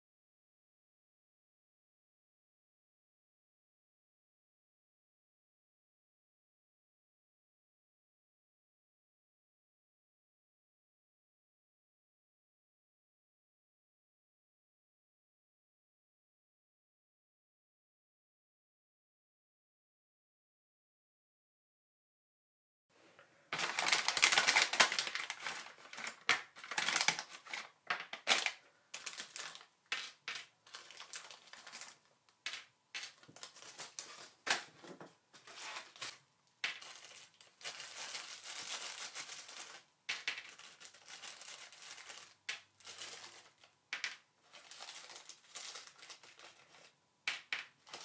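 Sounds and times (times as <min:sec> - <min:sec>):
small metal parts clinking: 0:23.6 - 0:28.4
plastic bag crinkling: 0:23.6 - 0:32.1, 0:33.0 - 0:34.5, 0:35.4 - 0:43.8, 0:44.4 - 0:46.9.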